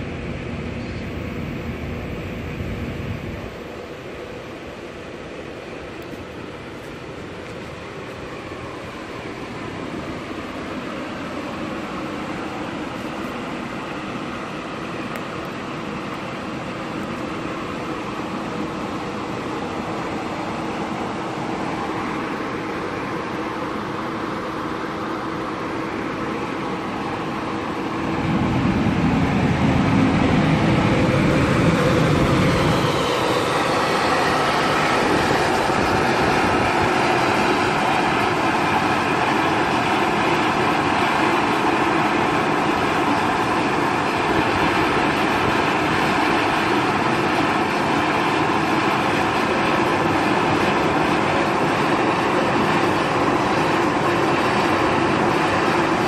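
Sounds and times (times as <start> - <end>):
exhaust blowers running: 0.0 - 56.0
deep rumble: 27.8 - 37.1.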